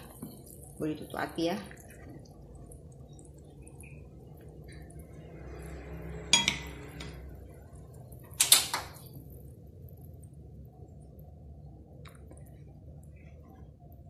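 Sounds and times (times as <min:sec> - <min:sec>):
metallic ring: 0:06.3 - 0:07.0
utensils clattering against wok: 0:06.3 - 0:07.2.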